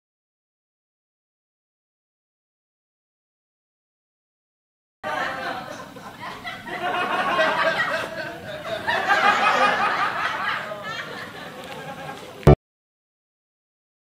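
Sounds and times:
people laughing: 0:05.0 - 0:12.4.

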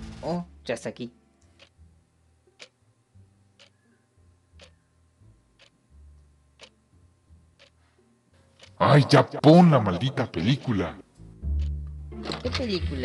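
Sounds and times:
clock ticking: 0:01.4 - 0:01.8, 0:02.5 - 0:02.8, 0:03.6 - 0:03.8, 0:04.6 - 0:04.8, 0:05.6 - 0:06.8, 0:07.4 - 0:07.8, 0:08.5 - 0:13.0.

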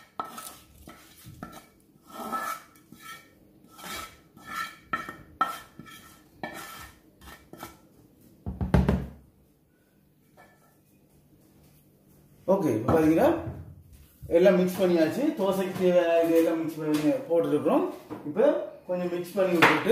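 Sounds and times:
wooden spoon scraping frying pan: 0:00.0 - 0:07.9.

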